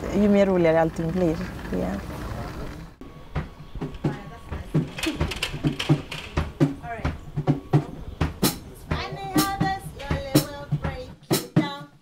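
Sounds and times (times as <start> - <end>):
drum kit beat: 3.0 - 12.0.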